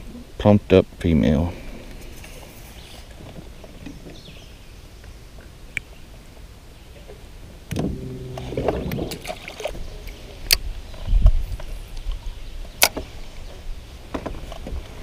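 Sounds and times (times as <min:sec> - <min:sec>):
clicks and knocks in boat: 0:07.7 - 0:09.8, 0:14.1 - 0:15.0
short pitched rattle: 0:07.7 - 0:10.0
low thumps: 0:07.7 - 0:10.2.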